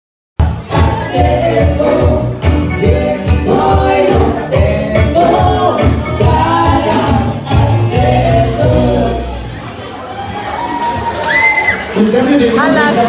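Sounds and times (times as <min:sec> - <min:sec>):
dance music with singing: 0:00.4 - 0:09.7.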